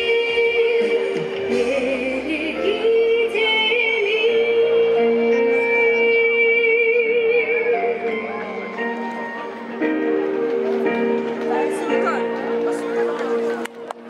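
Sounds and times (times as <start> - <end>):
woman singing with vibrato: 0.0 - 8.7
backing music over sound system: 0.0 - 14.0.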